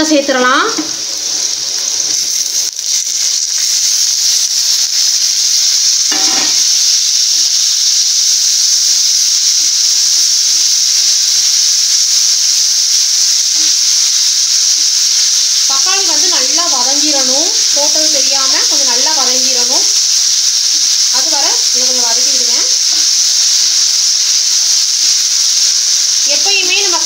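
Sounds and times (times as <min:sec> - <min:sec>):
food sizzling in a pan: 0:00.0 - 0:27.0.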